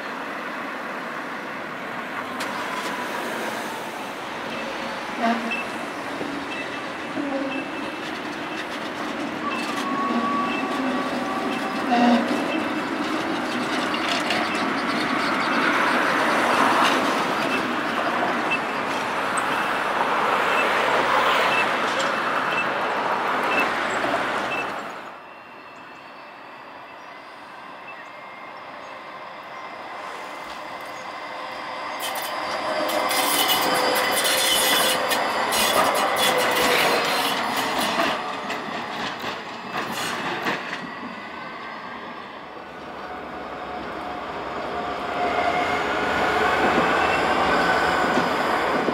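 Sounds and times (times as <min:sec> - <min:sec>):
tram running on street track: 0:00.0 - 0:48.9
falling tram whine: 0:01.4 - 0:48.9
tram wheels squealing: 0:02.2 - 0:48.9
rail clatter: 0:04.4 - 0:25.0, 0:30.2 - 0:41.6.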